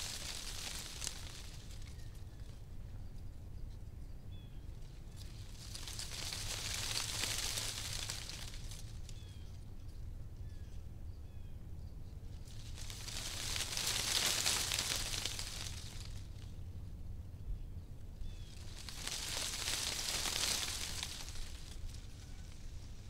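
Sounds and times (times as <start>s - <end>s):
steady low rumble: 0.0s - 23.0s
faint bird chirps: 9.0s - 12.2s.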